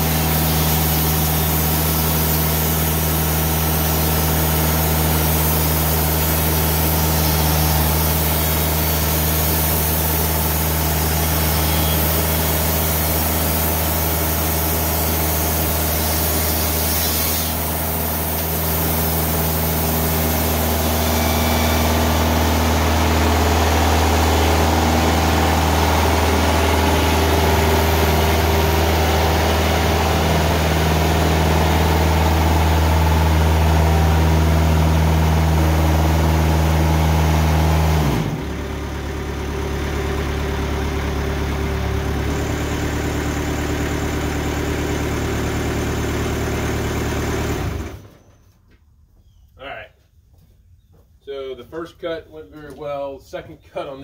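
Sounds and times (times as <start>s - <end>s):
saw hissing through log: 0.0s - 38.3s
sawmill engine drone: 0.0s - 48.2s.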